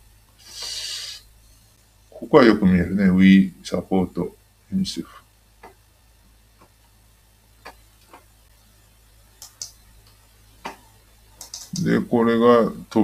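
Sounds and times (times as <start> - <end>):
low steady hum: 0.0 - 13.0
faint computer control clicks: 9.4 - 10.8, 11.4 - 11.9.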